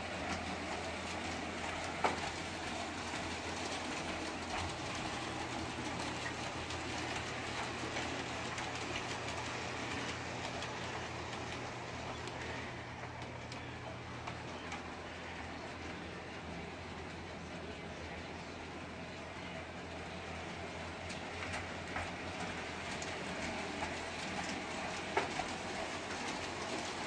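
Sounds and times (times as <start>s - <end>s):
model train running hum: 0.0s - 27.0s
wheel clicks over rail joints: 19.4s - 27.0s.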